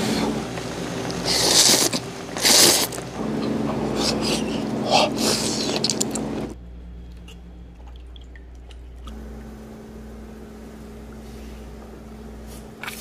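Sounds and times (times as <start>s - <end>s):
simmering pot hum and hiss: 0.0s - 13.0s
wet squishing: 7.1s - 9.2s.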